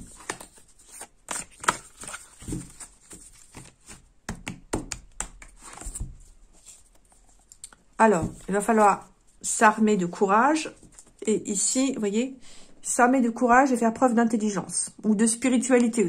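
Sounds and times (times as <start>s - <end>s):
cards being shuffled: 0.0s - 7.6s.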